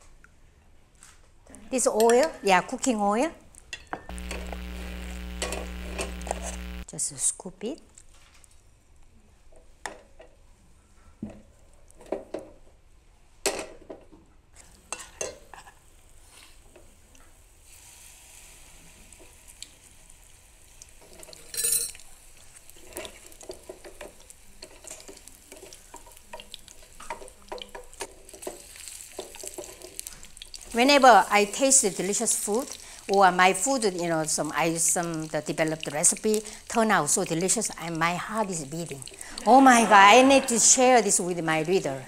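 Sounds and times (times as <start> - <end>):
batter sizzling in oil: 17.4 - 41.2.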